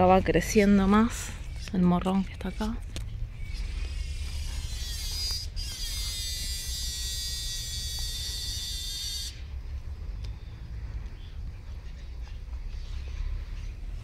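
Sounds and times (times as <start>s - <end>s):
high-pitched steady buzz: 0.0s - 9.6s.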